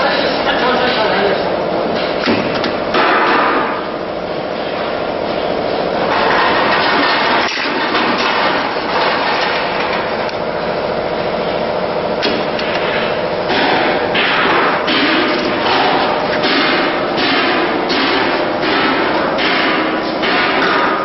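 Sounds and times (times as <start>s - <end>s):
metallic workshop clatter: 6.0s - 10.1s, 12.2s - 21.0s.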